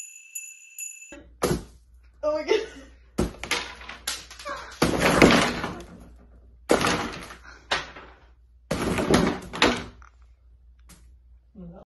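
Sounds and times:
pieces crashing onto wooden table: 3.2 - 10.1.

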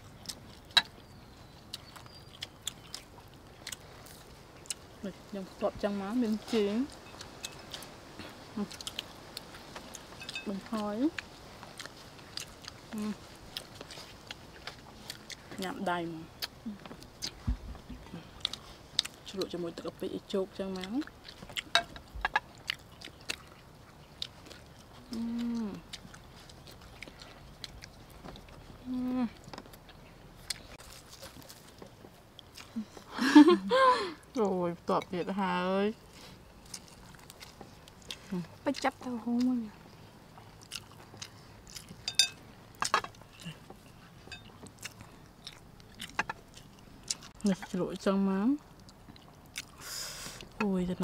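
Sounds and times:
chewing and biting: 0.0 - 5.0, 6.9 - 33.1, 36.0 - 47.8, 48.6 - 49.8
person humming mmm: 25.0 - 25.9, 28.8 - 29.4
utensils clinking on dishes: 42.1 - 42.4.

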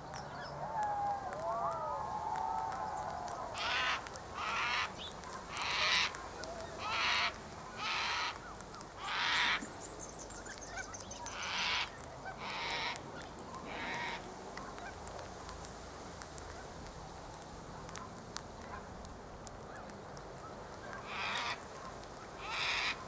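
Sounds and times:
cockatoo screeching: 6.8 - 8.4, 22.4 - 23.0.

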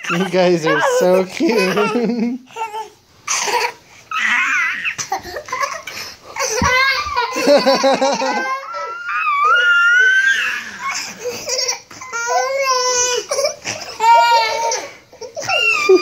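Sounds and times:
young children laughing: 0.0 - 2.5, 3.3 - 16.0
children squealing: 4.1 - 5.1, 5.7 - 13.3, 13.9 - 16.0.

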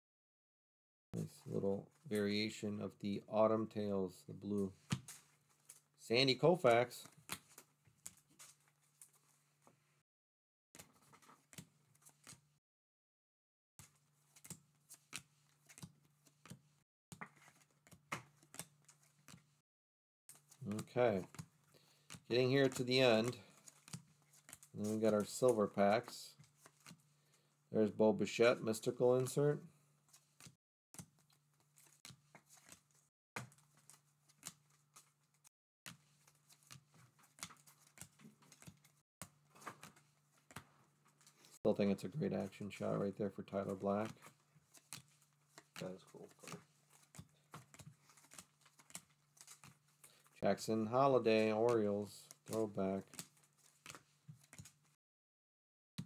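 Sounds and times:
cards clicking and swishing: 10.8 - 12.5, 13.8 - 19.6, 20.3 - 27.0, 28.7 - 39.0, 42.5 - 50.4, 51.0 - 54.9
cards flipping clicks and snaps: 17.2 - 19.5, 22.1 - 27.0, 44.3 - 50.3, 51.6 - 54.8.

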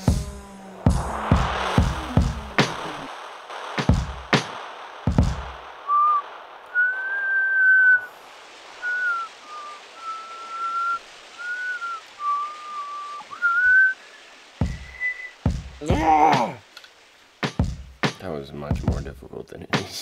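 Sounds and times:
low thumps: 0.0 - 8.7
man whistling a tune: 5.9 - 6.2, 6.8 - 8.1, 8.8 - 15.4.

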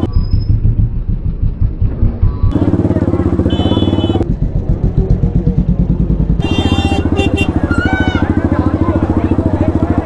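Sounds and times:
motorcycle engine at low revs: 0.0 - 10.0.

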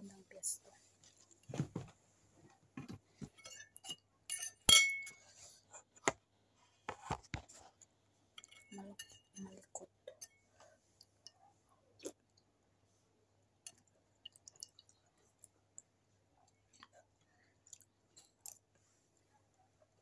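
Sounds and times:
spoon clinking in metal bowl: 3.4 - 5.2, 8.4 - 10.4
quiet chewing: 9.5 - 12.6, 13.6 - 20.0.

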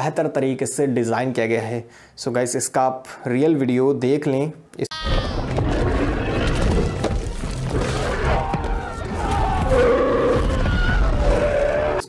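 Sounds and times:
music: 5.1 - 11.6.

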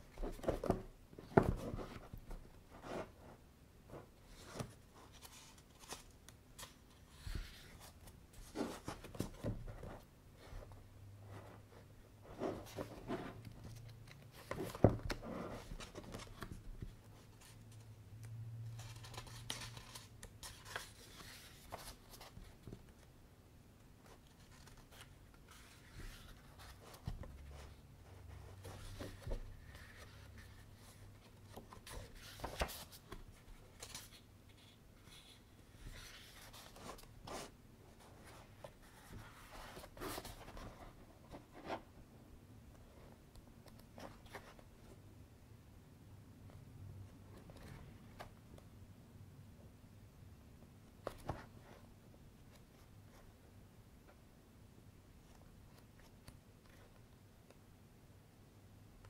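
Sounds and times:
book pages turning: 4.0 - 10.6, 12.4 - 17.9, 18.7 - 23.1, 24.0 - 27.7, 28.6 - 41.8.

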